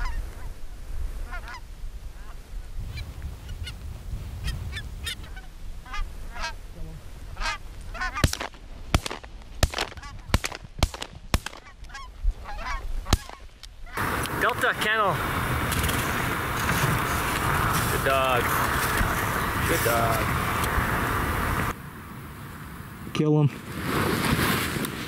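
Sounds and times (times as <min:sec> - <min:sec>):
geese honking: 0:01.2 - 0:01.6, 0:04.7 - 0:06.6, 0:07.3 - 0:08.5, 0:11.5 - 0:21.8
shotgun shots: 0:08.2 - 0:11.7, 0:13.1 - 0:13.5.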